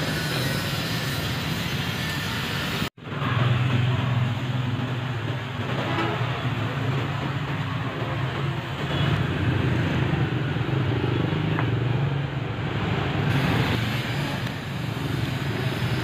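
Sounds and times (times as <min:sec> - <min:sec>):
street traffic: 0:00.0 - 0:16.0.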